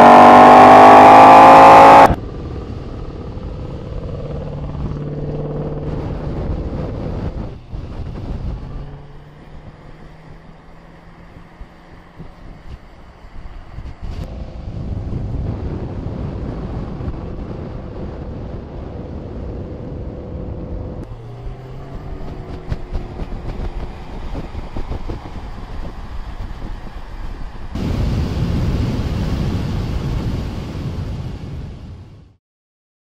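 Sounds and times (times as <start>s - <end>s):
car exhaust roaring: 0.0s - 30.2s
wind noise: 0.0s - 32.4s
exhaust crackles and pops: 12.1s - 20.0s, 21.9s - 30.4s.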